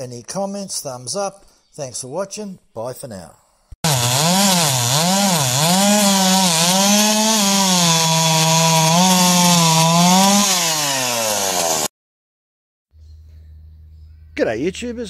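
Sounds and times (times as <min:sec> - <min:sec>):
chainsaw cutting logs: 0:03.8 - 0:11.9.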